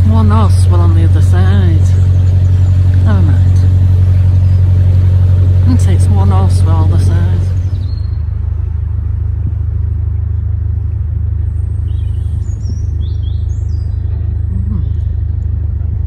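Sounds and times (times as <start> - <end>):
diesel boat engine throbbing: 0.0 - 16.0
small birds chirping: 0.0 - 16.0.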